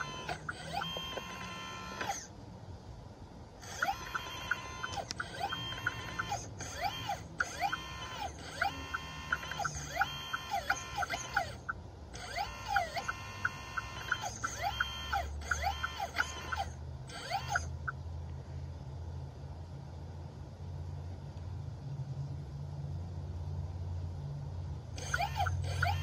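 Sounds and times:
quick even ticking: 0:00.0 - 0:02.3, 0:03.6 - 0:18.0, 0:25.0 - 0:26.0
hydraulic pump motor whining: 0:00.0 - 0:02.4, 0:03.6 - 0:18.0, 0:25.0 - 0:26.0.

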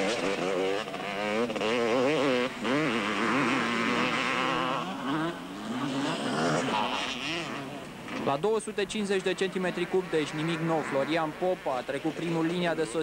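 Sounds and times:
motorcycle engine revving hard: 0:00.0 - 0:08.4.

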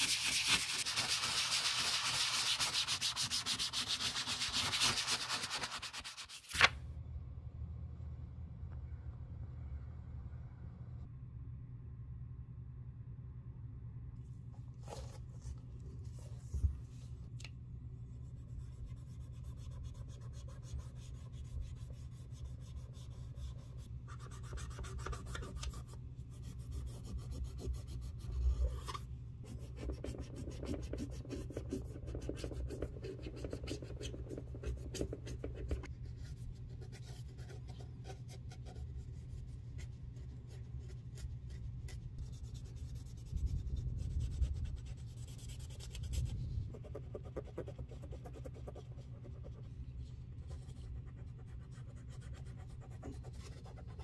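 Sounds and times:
steady low hum: 0:05.5 - 0:54.0.

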